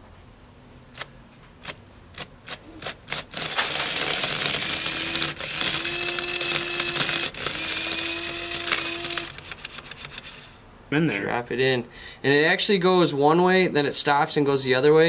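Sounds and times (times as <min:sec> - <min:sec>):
sharp clicks: 0:00.9 - 0:10.3
electric grinder whirring: 0:03.2 - 0:09.4.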